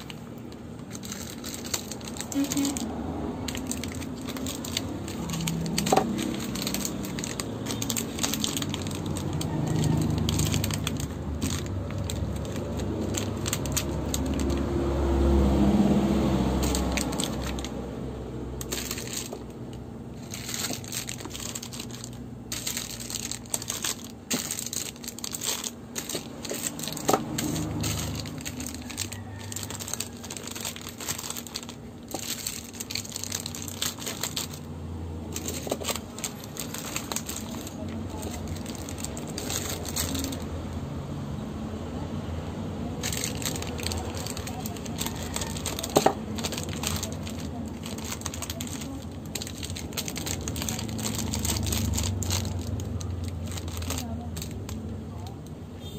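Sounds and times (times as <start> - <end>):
plastic wrappers crinkling: 0.0 - 40.9, 42.8 - 55.6
soap bars clicking and knocking: 43.2 - 51.9.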